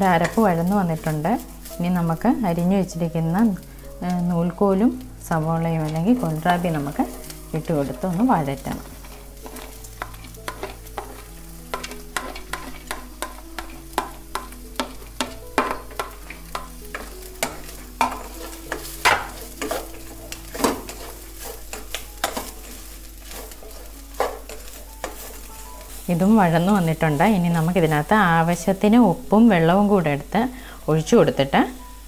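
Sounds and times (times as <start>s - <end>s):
light sizzle of sauteing: 0.0s - 32.0s
spatula scraping a steel pot: 8.7s - 26.0s.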